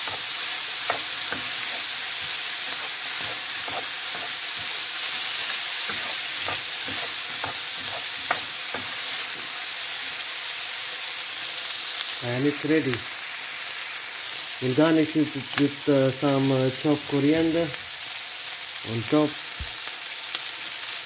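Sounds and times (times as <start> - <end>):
spatula scraping a pan: 0.0 - 10.1
food sizzling in oil: 0.0 - 21.0.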